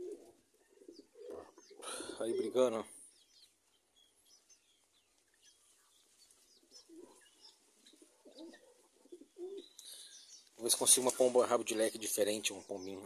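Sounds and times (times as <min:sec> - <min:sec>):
pigeon cooing: 0:00.0 - 0:02.8, 0:06.5 - 0:10.2
small birds chirping: 0:00.0 - 0:13.0.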